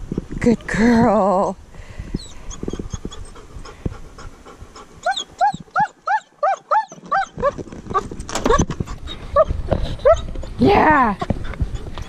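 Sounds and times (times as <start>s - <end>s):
dog panting: 2.2s - 6.0s
dog whining: 5.0s - 10.6s.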